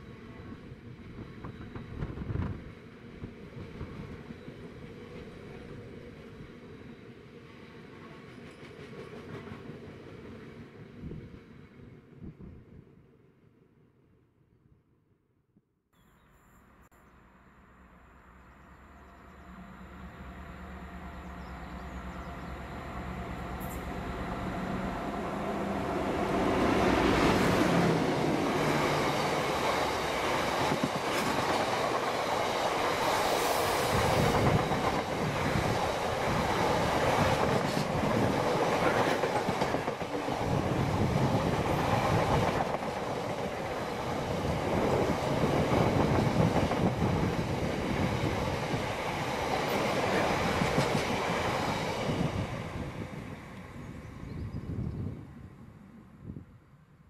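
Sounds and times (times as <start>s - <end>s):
diesel locomotive engine passing: 17.0s - 57.0s.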